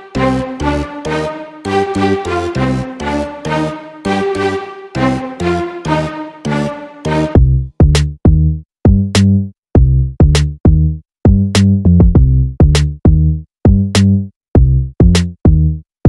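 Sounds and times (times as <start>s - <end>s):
drum-machine beat: 6.6s - 15.7s.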